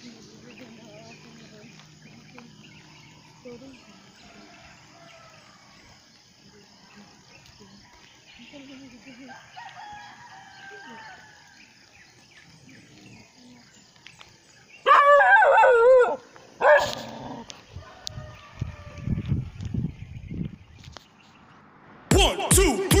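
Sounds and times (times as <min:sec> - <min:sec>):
rooster crowing: 0:09.3 - 0:11.2, 0:17.8 - 0:19.4.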